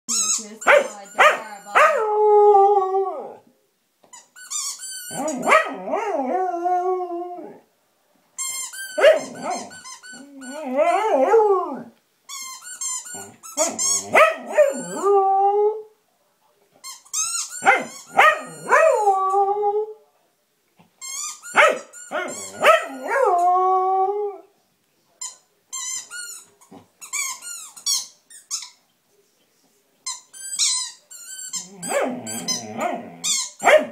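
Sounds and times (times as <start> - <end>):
squeaky toy squeaks: 0.1 - 1.8, 4.1 - 5.6, 8.4 - 11.0, 12.3 - 15.2, 16.8 - 19.1, 21.0 - 23.5, 25.2 - 28.8, 30.0 - 33.9
dog howling: 10.2 - 11.9, 14.3 - 15.9, 22.2 - 24.5.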